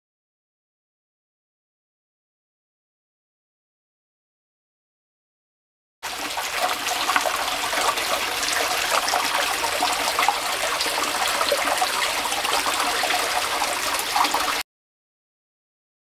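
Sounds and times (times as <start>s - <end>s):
creek trickling and splashing: 6.0s - 14.6s.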